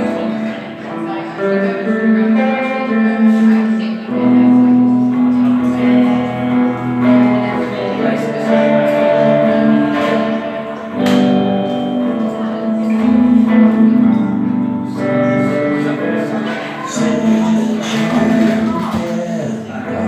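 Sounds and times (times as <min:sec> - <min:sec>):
guitar strummed and picked: 0:00.0 - 0:20.0
man singing long notes: 0:15.8 - 0:20.0.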